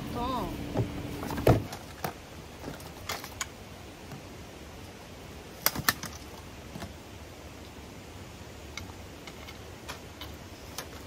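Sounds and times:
bag rustle and poles thump: 0.7s - 3.5s.

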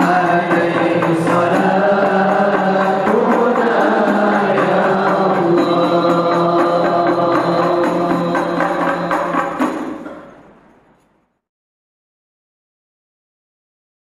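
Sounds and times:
young men chanting through microphones: 0.0s - 9.6s.

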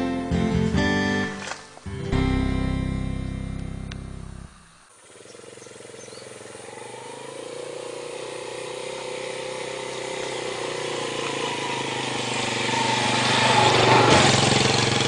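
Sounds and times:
motor scooter engine running: 3.4s - 15.0s.

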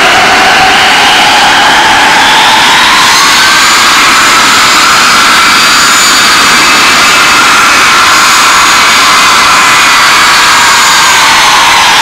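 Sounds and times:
jet engines with high whine: 0.0s - 12.0s.

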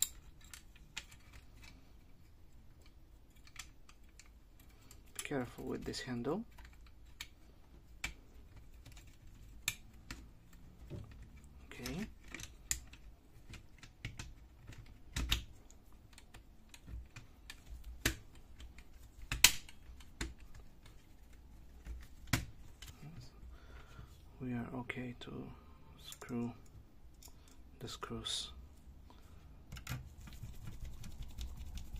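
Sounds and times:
plastic parts clicking: 0.0s - 5.3s, 6.4s - 23.2s.

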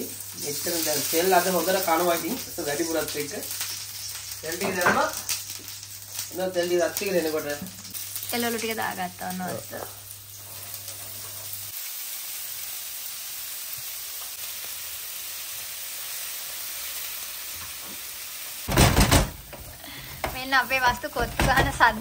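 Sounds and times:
vegetables sizzling in hot oil: 0.0s - 22.0s
loud knocks: 18.7s - 19.6s.

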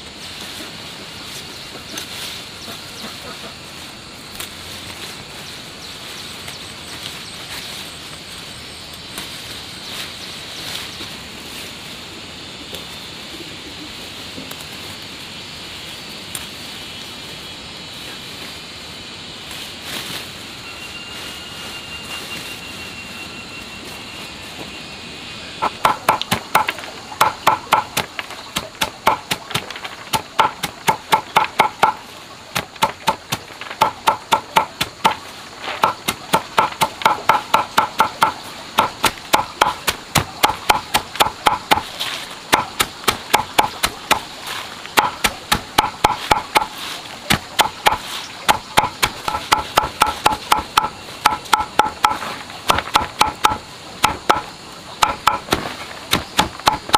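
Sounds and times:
steady background hum: 0.0s - 56.9s
hand tool striking wood: 25.6s - 44.3s, 44.9s - 56.9s.

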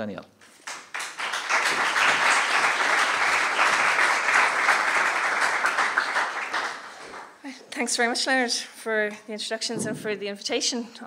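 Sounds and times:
audience applauding: 0.5s - 7.4s.

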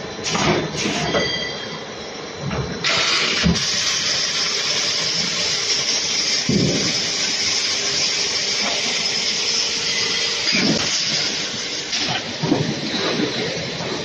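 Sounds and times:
machine hissing: 2.8s - 14.0s
machine parts knocking and clanking: 6.1s - 9.5s, 10.2s - 14.0s.

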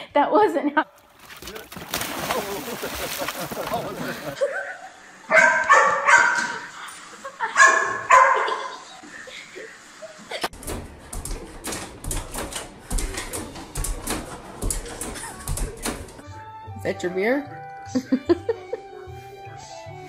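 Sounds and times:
dog barking: 5.3s - 6.7s, 7.6s - 8.7s.

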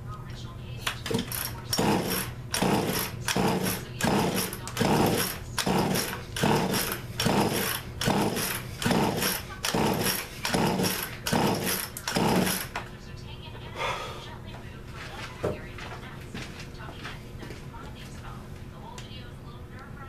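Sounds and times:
chainsaw starter pulls: 1.0s - 12.8s.

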